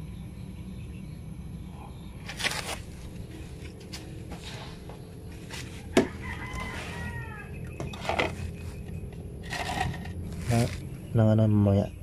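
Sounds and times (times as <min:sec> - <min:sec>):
rooster crowing: 0:05.7 - 0:08.0.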